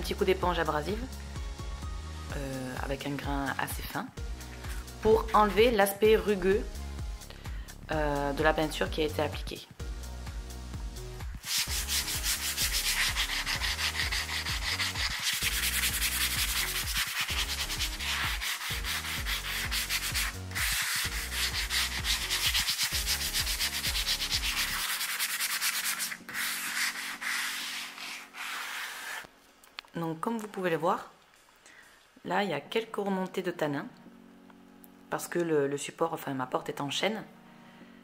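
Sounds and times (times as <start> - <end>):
sponge sanding wood: 11.4 - 29.3.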